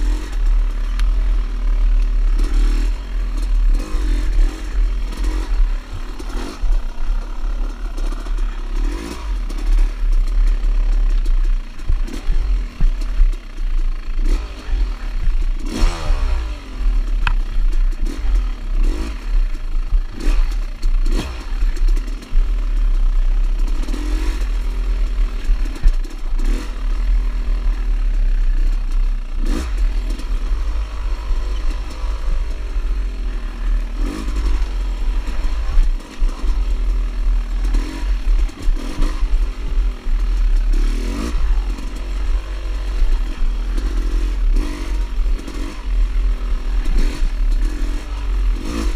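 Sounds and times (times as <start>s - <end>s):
dirt bike engine revving: 0.0s - 48.9s.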